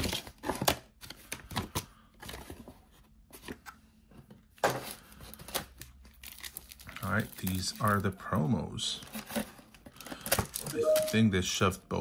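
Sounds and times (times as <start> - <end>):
paper and cardboard rustling: 0.0 - 8.1.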